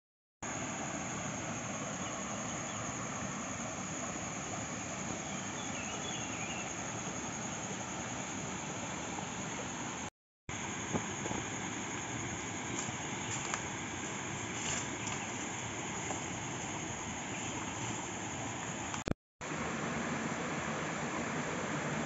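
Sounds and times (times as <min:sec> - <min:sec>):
faint chirps: 0:05.0 - 0:07.6.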